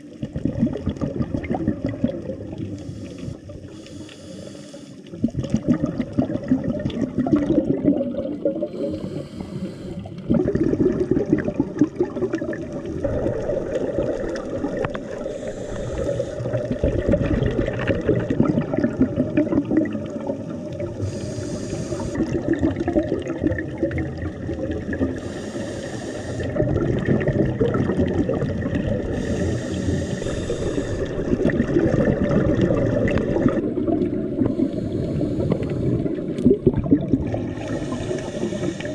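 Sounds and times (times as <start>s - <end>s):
exhaled air bubbling underwater: 0.0s - 38.9s
regulator inhalation hiss: 2.7s - 5.1s, 8.7s - 10.2s, 14.9s - 16.7s, 21.0s - 22.3s, 25.2s - 26.5s, 29.1s - 31.3s, 34.5s - 36.2s, 37.5s - 38.9s.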